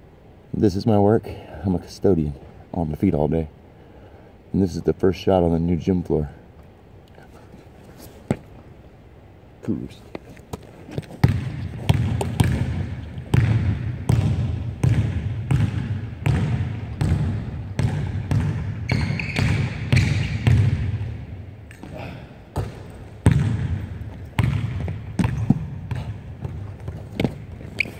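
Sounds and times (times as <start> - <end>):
basketball dribbling on wooden floor: 11.0 - 21.0, 22.6 - 27.8
sneaker squeaks: 18.8 - 20.6, 24.3 - 27.9.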